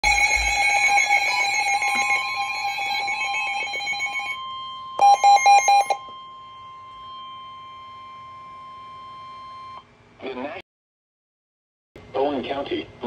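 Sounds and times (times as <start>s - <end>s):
steady radio alert tone: 0.0s - 4.4s
electronic alarm chirping: 0.0s - 9.9s
loud beeps: 5.0s - 6.1s.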